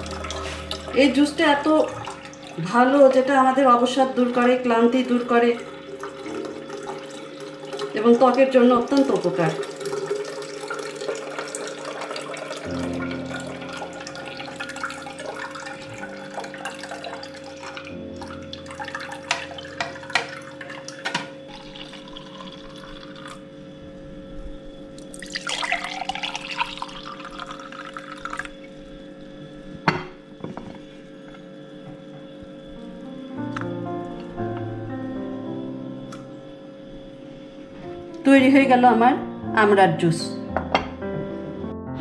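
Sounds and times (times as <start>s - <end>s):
juice pouring into a glass: 0.0s - 2.7s, 5.0s - 23.8s, 25.0s - 29.4s
juice trickling through a strainer: 0.0s - 3.2s, 4.2s - 24.0s, 24.9s - 29.4s.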